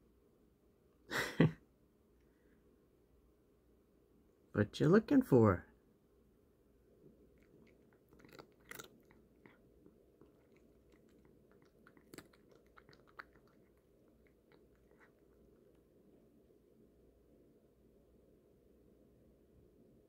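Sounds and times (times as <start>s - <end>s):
cat crunching treats: 7.2s - 15.9s.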